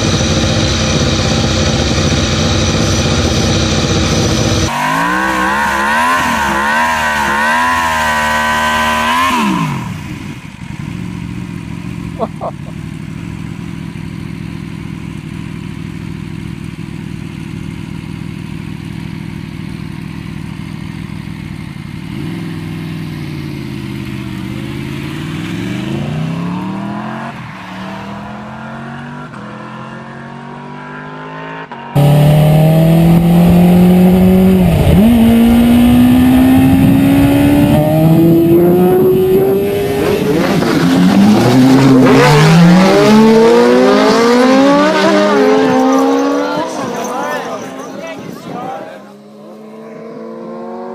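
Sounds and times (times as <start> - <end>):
car engine revving hard: 0.0 - 10.4, 25.1 - 48.0
motorcycle revving high: 0.0 - 17.2, 22.0 - 50.9
vehicles passing on road: 0.0 - 50.9.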